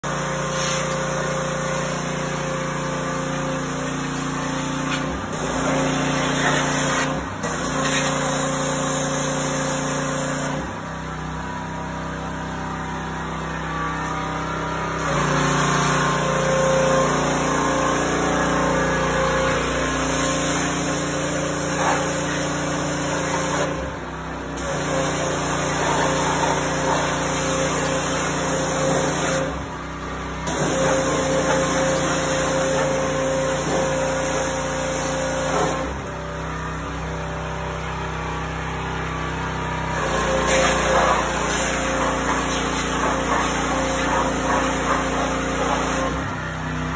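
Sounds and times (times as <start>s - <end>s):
pressure washer spray hissing: 0.1s - 10.6s, 15.0s - 23.8s, 24.6s - 29.5s, 30.5s - 35.8s, 39.9s - 46.2s.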